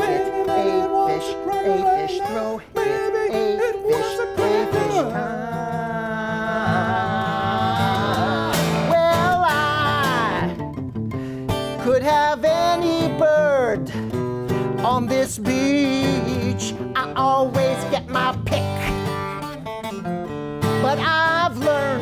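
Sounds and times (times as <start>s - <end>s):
men singing: 0.0s - 10.6s, 14.8s - 19.1s, 20.8s - 22.0s
acoustic guitar strummed: 0.0s - 22.0s.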